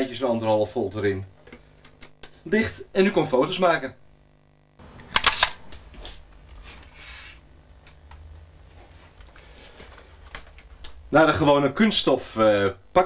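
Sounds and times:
camera clicks: 5.0 - 5.6.

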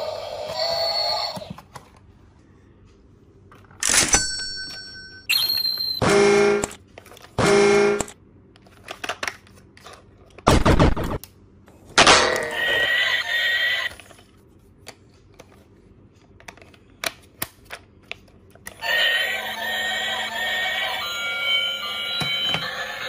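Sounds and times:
toy electronic sound: 18.8 - 23.0.

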